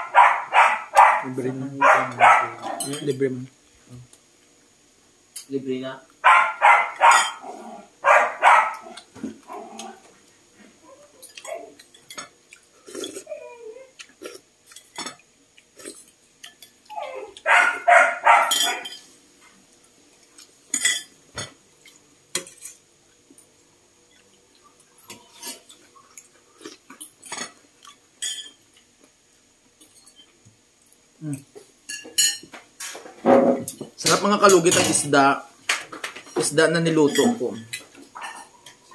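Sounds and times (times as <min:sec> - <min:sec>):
dog barking: 0:00.0 - 0:02.8, 0:06.2 - 0:09.0, 0:17.1 - 0:19.0, 0:38.2 - 0:38.5
spoon and bowls clinking: 0:02.2 - 0:03.3, 0:07.0 - 0:07.5, 0:18.3 - 0:19.1, 0:20.7 - 0:22.8, 0:27.0 - 0:28.6, 0:31.4 - 0:33.0, 0:36.0 - 0:38.9.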